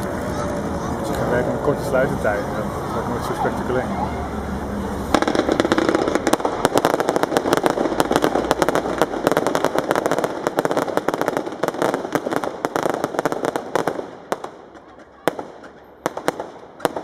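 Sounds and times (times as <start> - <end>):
fireworks crackling and popping: 0.0 - 3.9, 4.6 - 17.0
continuous rushing noise: 0.0 - 17.0.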